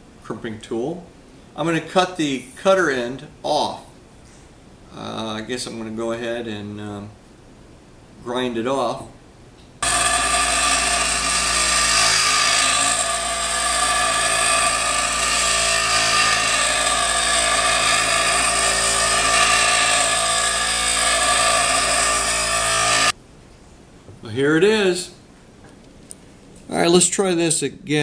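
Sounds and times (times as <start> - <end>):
bench grinder grinding steel: 9.8 - 23.1.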